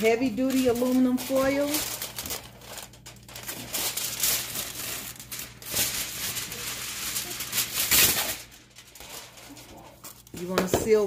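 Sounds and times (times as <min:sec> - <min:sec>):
aluminium foil crinkling: 0:00.0 - 0:11.0.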